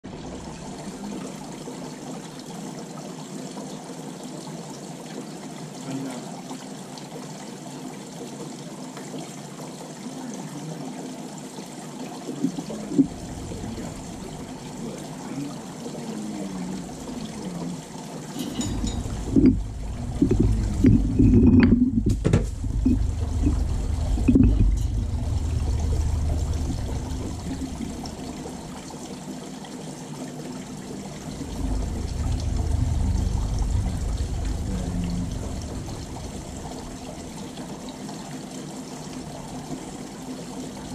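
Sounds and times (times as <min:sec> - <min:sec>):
water trickling: 0:00.0 - 0:40.9
knocks and rubbing: 0:18.4 - 0:28.6.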